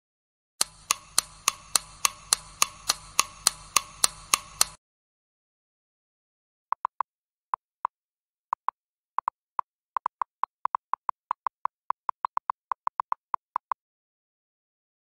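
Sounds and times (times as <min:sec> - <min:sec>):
electronic timer blips: 0:00.6 - 0:04.8.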